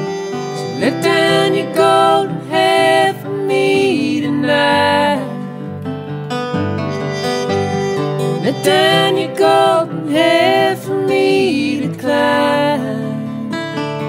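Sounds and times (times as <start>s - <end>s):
acoustic guitars playing: 0.0s - 14.0s
wavering lead melody: 6.6s - 10.7s.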